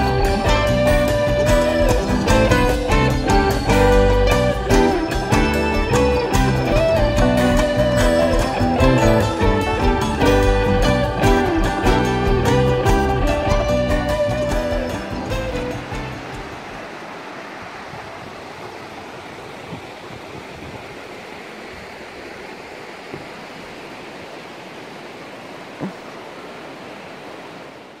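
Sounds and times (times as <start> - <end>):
music: 0.0 - 16.8
river rushing over rocks: 0.0 - 28.0
soft knocks: 25.8 - 26.0.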